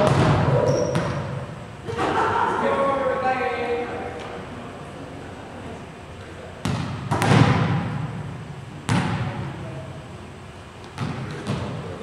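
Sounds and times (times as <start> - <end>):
volleyball hits echoing: 0.0 - 1.6, 6.6 - 9.6, 10.8 - 11.9.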